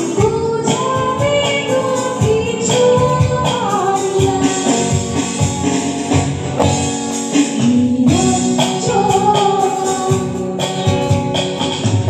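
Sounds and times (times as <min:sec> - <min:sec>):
woman singing: 0:00.0 - 0:05.4, 0:07.3 - 0:11.0
electric bass guitar: 0:00.0 - 0:12.0
keyboards: 0:00.0 - 0:12.0.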